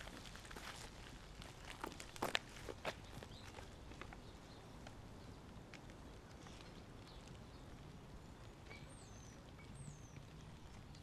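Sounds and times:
faint outdoor ambience: 0.0 - 11.0.

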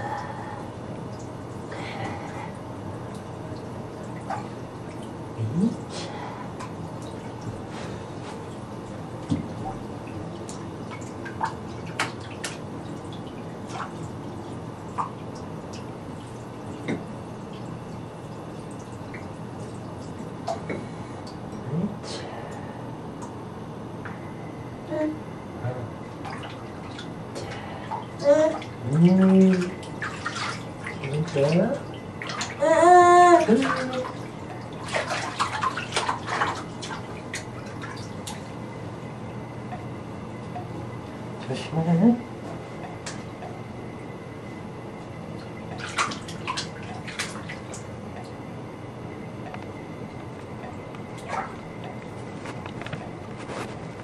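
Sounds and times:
bathwater splashing: 1.2 - 21.4, 26.1 - 38.7, 45.4 - 48.4, 50.5 - 52.7.

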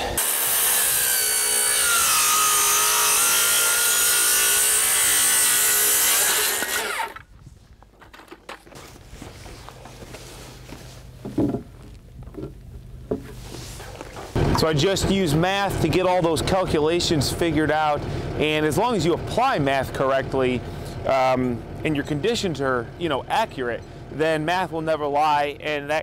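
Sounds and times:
circular saw cutting wood: 0.0 - 7.2.

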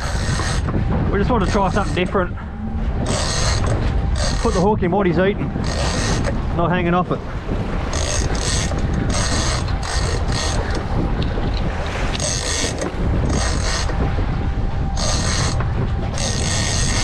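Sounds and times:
fishing reel gears whirring: 0.0 - 0.8, 3.0 - 4.7, 5.5 - 6.4, 7.8 - 14.2, 14.8 - 17.0
steady low rumble: 0.0 - 17.0.

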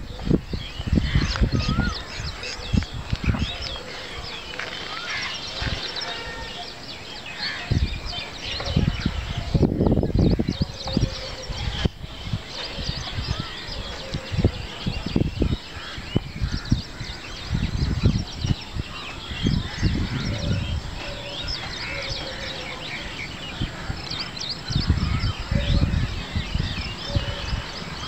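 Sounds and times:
birds chirping: 0.0 - 28.0
wind buffeting microphone: 0.0 - 28.0.

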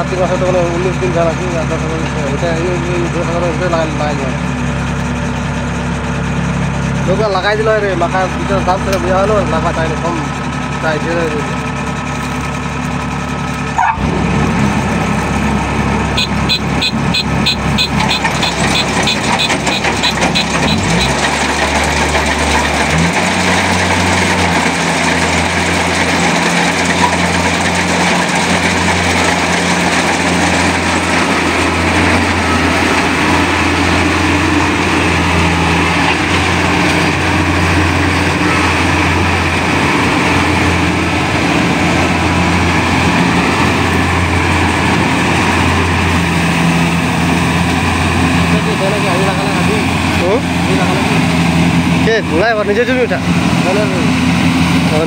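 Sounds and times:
diesel engine drone: 0.0 - 55.0
machinery whirring: 14.4 - 55.0.

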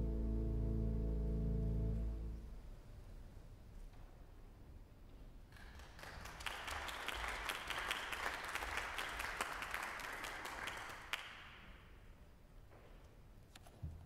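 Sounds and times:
scattered hand claps: 5.5 - 11.6.

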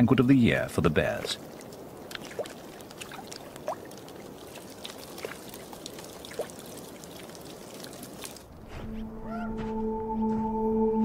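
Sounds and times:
water trickling: 0.5 - 8.5
small water plops: 1.1 - 8.5.

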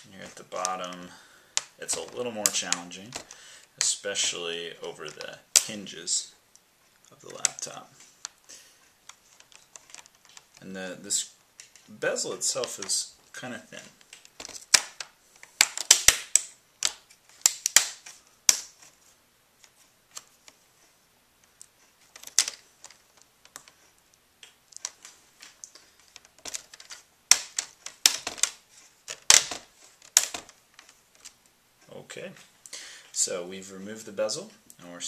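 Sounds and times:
plastic clips popping loose: 13.8 - 18.8, 22.2 - 23.8, 24.4 - 31.4.

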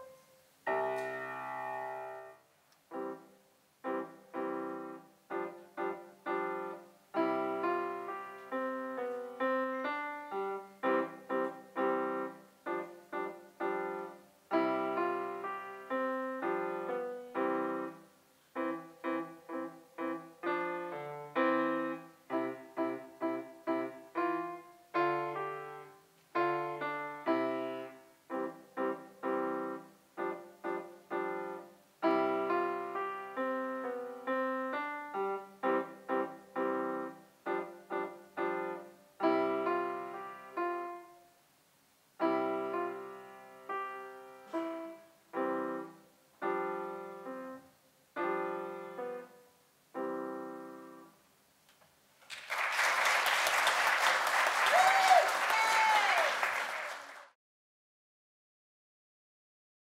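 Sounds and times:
solo grand piano: 0.0 - 51.3
audience applause: 52.2 - 57.4.

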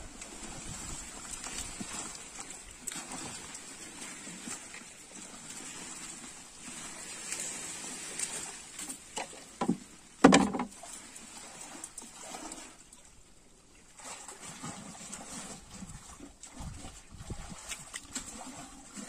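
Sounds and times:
water sloshing: 0.0 - 19.0
hollow knocks on wooden canoe: 9.6 - 10.7.

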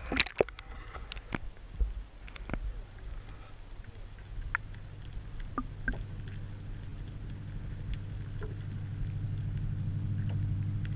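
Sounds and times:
low underwater rumble: 0.0 - 10.9.

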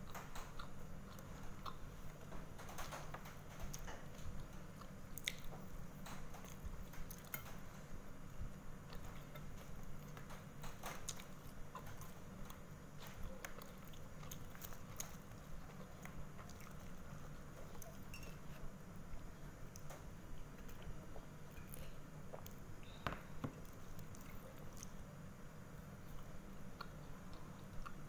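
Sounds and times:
steady low hum: 0.0 - 28.0
chewing and wet mouth clicks: 0.1 - 1.8, 3.6 - 7.6, 8.9 - 17.0, 26.0 - 28.0.

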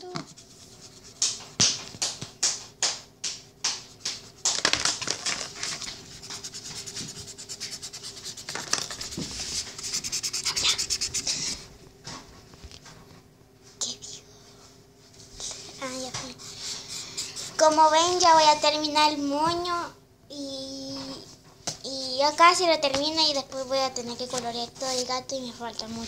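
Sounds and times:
marker scratching on paper: 5.8 - 11.7.

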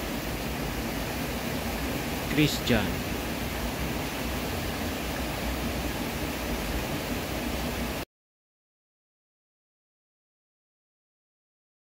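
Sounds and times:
steady rushing noise: 0.0 - 8.0.

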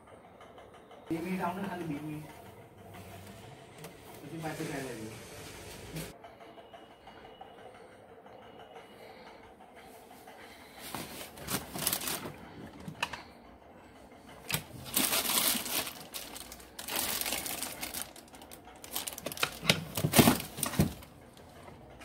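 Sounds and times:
plastic housings clattering: 14.4 - 22.0.

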